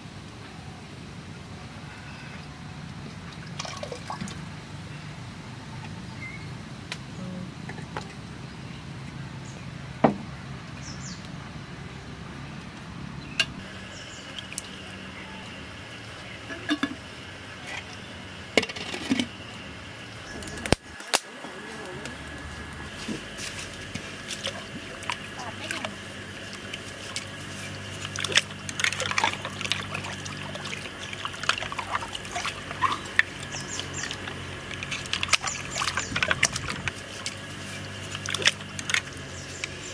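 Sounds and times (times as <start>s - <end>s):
water pouring and sloshing: 3.3s - 4.5s, 22.9s - 39.9s.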